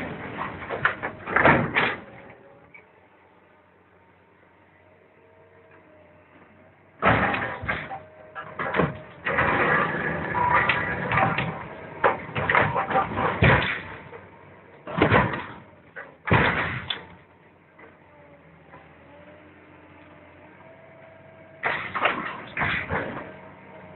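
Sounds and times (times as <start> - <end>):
steel hull crumpling and scraping: 0.0 - 2.7, 6.4 - 17.2, 21.6 - 23.5
metal crunches: 7.0 - 14.2, 14.8 - 17.1, 21.6 - 23.4.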